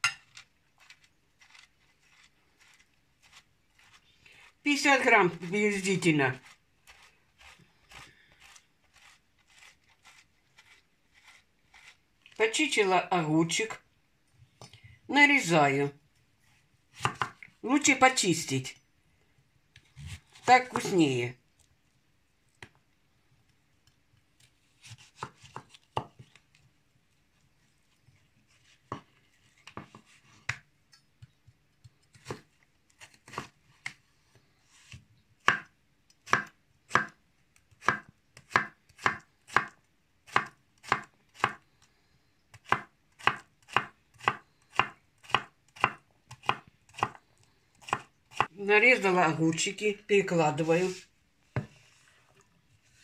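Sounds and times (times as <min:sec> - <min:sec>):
knife chopping on wooden board: 0:17.0 - 0:17.4, 0:24.8 - 0:26.2, 0:35.5 - 0:35.7, 0:36.3 - 0:37.2, 0:37.8 - 0:41.6, 0:42.7 - 0:47.2.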